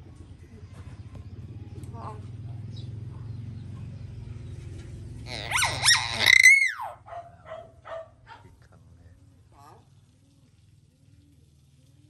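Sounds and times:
myna bird calling: 5.2s - 7.0s.

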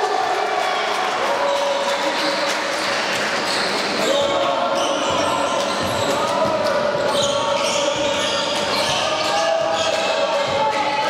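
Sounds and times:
voices: 0.0s - 11.0s
basketball bouncing: 5.0s - 10.8s.

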